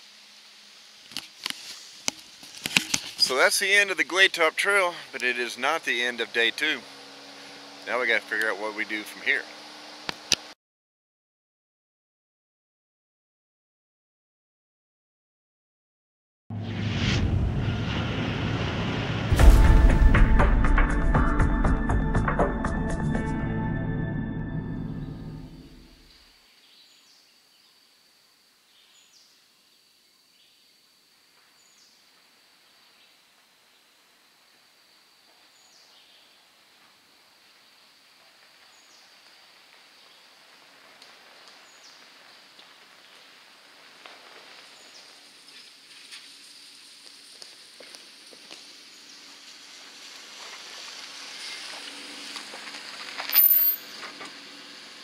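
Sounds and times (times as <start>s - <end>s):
car engine driving slowly: 3.4s - 10.6s, 38.2s - 55.0s
sudden loud noise: 16.5s - 21.4s.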